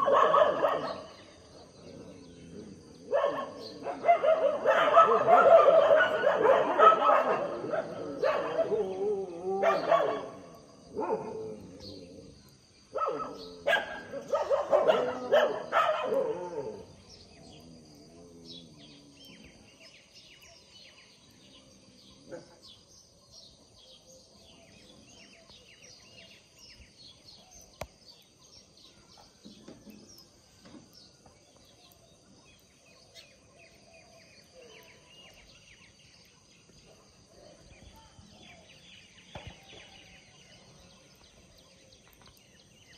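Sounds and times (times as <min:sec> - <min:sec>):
dogs barking loudly: 0:00.0 - 0:01.2, 0:02.9 - 0:11.6, 0:12.9 - 0:17.0
birds chirping: 0:00.0 - 0:42.9.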